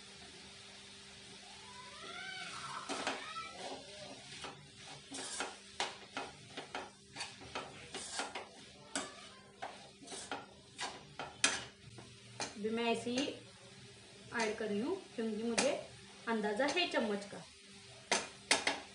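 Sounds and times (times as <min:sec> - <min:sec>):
metal spoon scraping a wok: 0:02.9 - 0:11.8.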